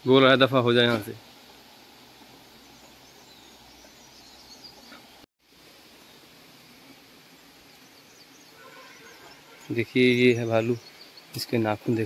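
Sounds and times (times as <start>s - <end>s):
faint bird chirps: 2.6s - 5.2s, 6.8s - 12.0s.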